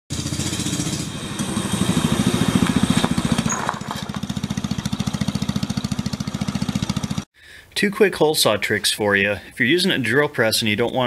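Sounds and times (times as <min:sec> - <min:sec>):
small engine putt-putting: 0:00.1 - 0:07.2.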